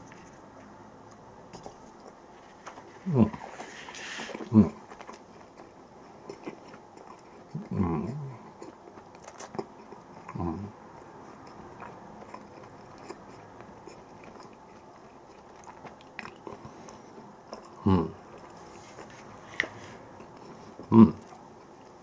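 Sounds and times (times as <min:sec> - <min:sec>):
low murmur: 0:00.0 - 0:05.2
person chewing: 0:01.1 - 0:22.0.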